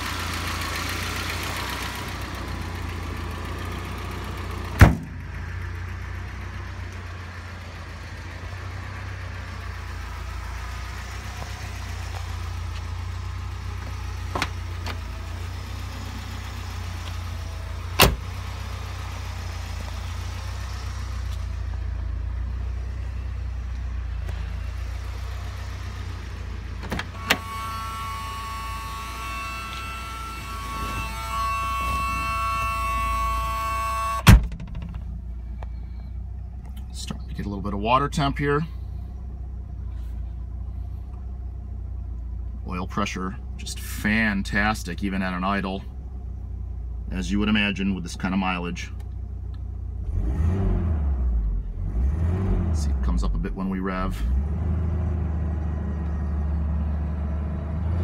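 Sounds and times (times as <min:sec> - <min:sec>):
car engine idling: 0:00.0 - 0:50.2, 0:52.8 - 0:58.0
car hood slamming shut: 0:04.8 - 0:05.2, 0:18.0 - 0:18.3, 0:34.2 - 0:35.0.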